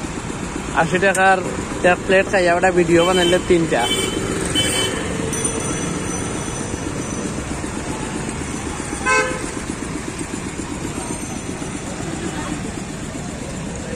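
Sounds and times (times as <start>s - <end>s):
busy street traffic: 0.0s - 13.9s
vehicle horn toot: 2.9s - 5.3s, 9.0s - 9.6s.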